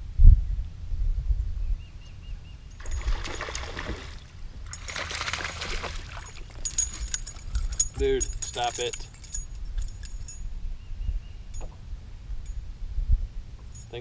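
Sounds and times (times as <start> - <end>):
steady low rumble: 0.0 - 2.8, 6.6 - 14.0
fish splashing in water: 2.8 - 6.6.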